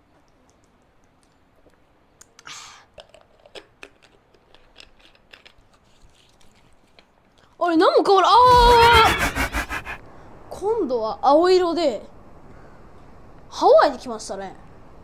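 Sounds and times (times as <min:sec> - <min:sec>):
short rush of noise: 0:08.5 - 0:10.0.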